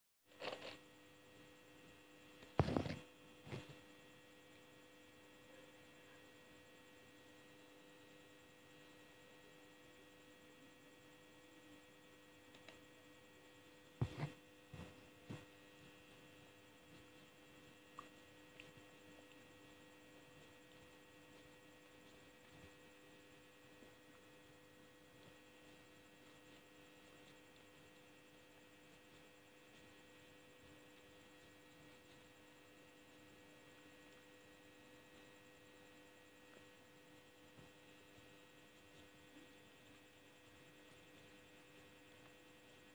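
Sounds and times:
steady electrical hum: 0.3s - 42.9s.

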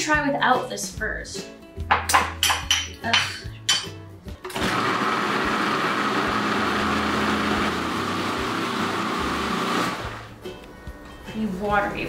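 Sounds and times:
food processor motor blending: 4.5s - 10.3s.

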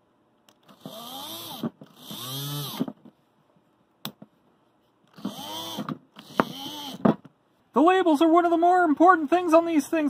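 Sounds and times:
drill motor whine: 0.8s - 2.9s, 5.2s - 7.0s.

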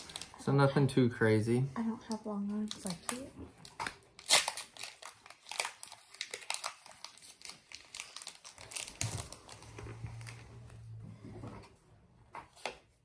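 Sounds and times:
foil wrapper crinkling: 0.0s - 0.4s, 2.6s - 10.3s.

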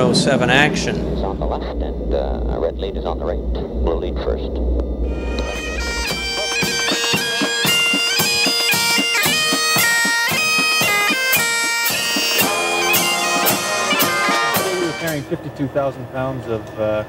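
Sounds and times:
drum beats: 5.1s - 15.4s
bagpipes playing a tune: 5.1s - 15.6s.

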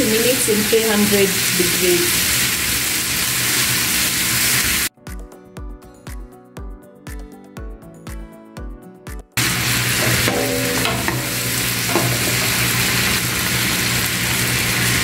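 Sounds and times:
meat sizzling in oil: 0.0s - 4.9s, 9.4s - 15.0s
background music with a beat: 4.9s - 9.4s.

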